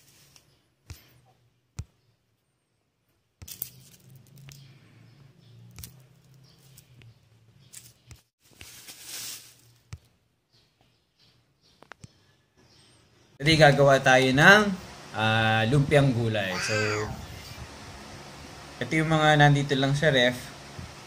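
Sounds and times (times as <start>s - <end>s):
plastic packaging rustling: 8.4s - 9.9s.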